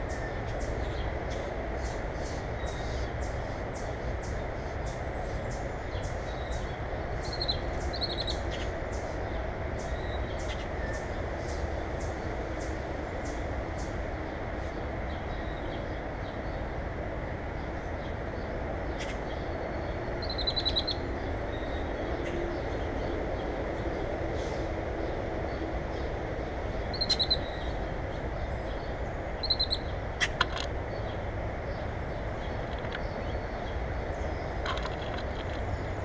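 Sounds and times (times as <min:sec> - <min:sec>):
songbirds chirping: 0:00.0 - 0:36.0
bird trills: 0:07.2 - 0:08.7, 0:20.2 - 0:21.0, 0:26.9 - 0:27.7, 0:29.4 - 0:30.4.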